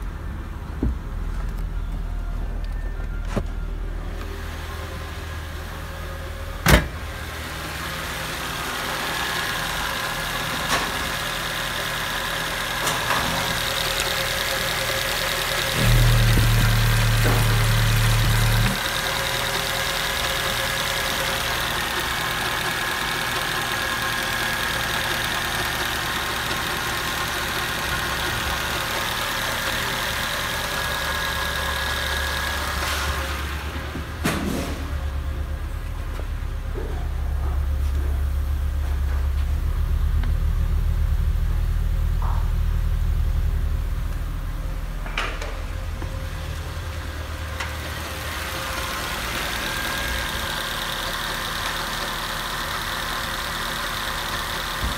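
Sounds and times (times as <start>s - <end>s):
car engine idling: 3.7s - 54.9s
loud low hum: 14.5s - 19.2s, 31.0s - 50.5s.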